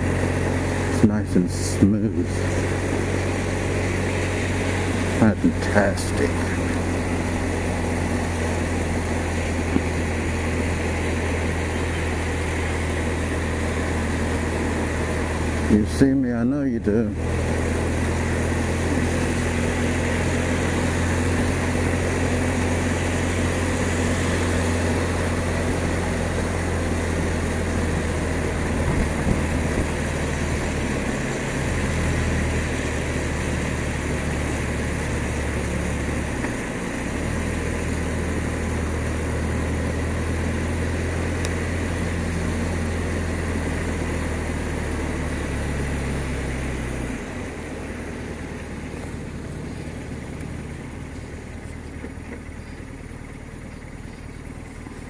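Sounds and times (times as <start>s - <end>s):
motorcycle engine running: 0.0s - 55.0s
wet tyre noise: 0.0s - 55.0s
wind noise: 27.7s - 31.1s.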